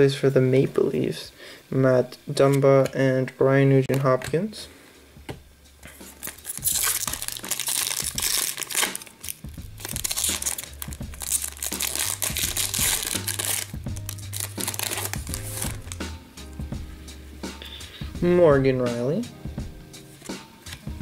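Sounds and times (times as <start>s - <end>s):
foil pack tearing: 6.2s - 16.0s
foil wrapper crinkling: 6.2s - 16.0s.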